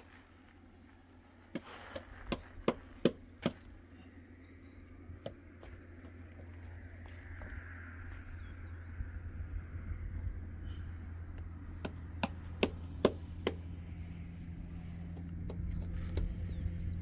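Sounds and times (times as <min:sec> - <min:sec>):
faint pulsing high chirp: 0:00.0 - 0:17.0
sharp knocks: 0:11.8 - 0:13.6.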